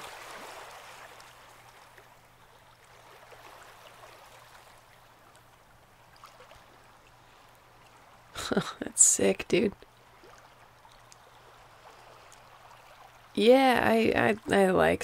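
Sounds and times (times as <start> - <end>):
waves washing on beach: 0.0 - 4.8
low steady hum: 0.0 - 15.0.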